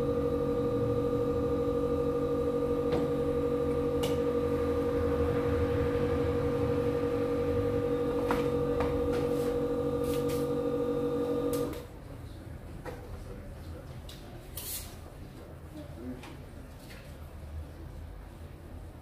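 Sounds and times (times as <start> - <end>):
electric motor buzzing hum: 0.0 - 11.8.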